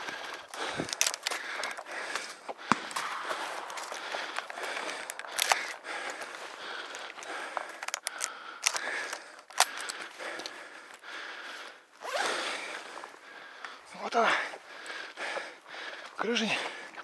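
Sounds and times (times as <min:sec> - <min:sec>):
camera handling rustling: 0:00.0 - 0:10.5
sharp clicks: 0:00.4 - 0:10.6.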